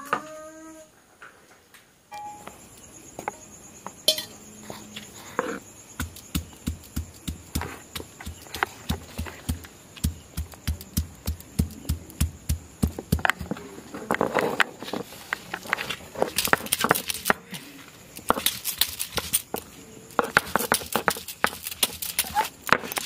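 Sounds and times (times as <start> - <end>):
stone pestle pounding garlic: 5.9 - 13.7, 20.2 - 23.0.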